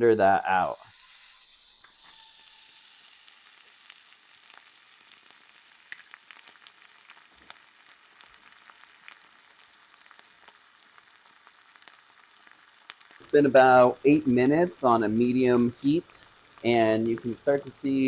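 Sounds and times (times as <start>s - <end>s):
steak sizzling in a skillet: 0.6s - 18.0s
fat popping and crackling: 3.6s - 18.0s.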